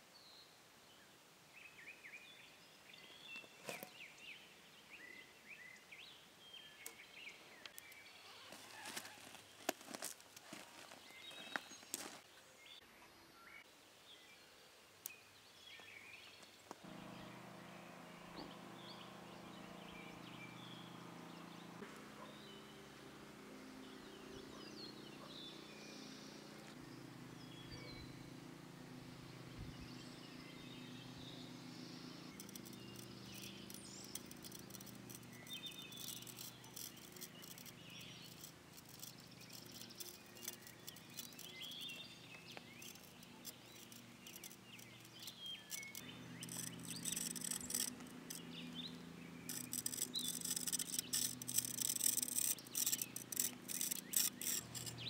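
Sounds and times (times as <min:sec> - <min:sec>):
birds chirping faintly: 0:00.0 - 0:55.0
pencil scratching on stone and wood: 0:32.3 - 0:42.0, 0:42.7 - 0:48.4, 0:49.5 - 0:55.0.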